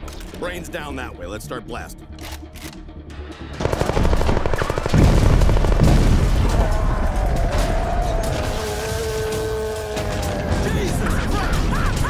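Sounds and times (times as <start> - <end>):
automatic rifle rapid fire: 3.6 - 6.2.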